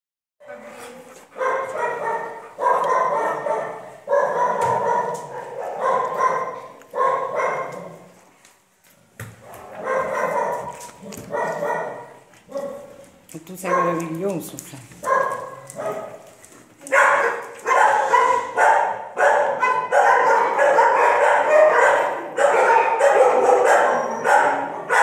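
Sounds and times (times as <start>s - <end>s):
dog whining yowls: 23.1s - 24.7s.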